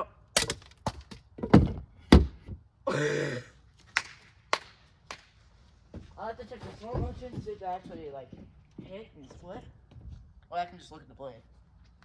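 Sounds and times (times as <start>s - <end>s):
axe thunks and clatters: 0.4s - 2.6s.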